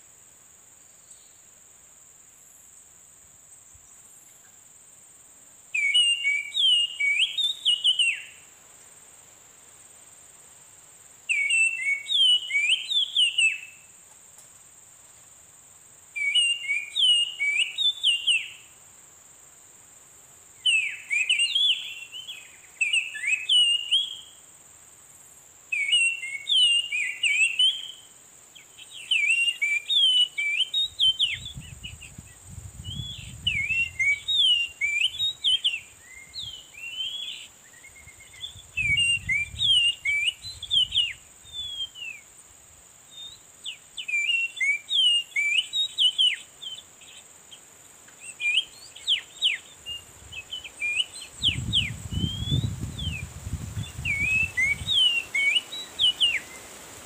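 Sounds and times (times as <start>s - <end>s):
high insect drone: 0.0s - 57.0s
bird song whistled phrases: 5.7s - 8.4s, 11.3s - 13.9s, 16.1s - 18.7s, 20.6s - 24.4s, 25.7s - 42.3s, 43.1s - 47.2s, 48.2s - 56.7s.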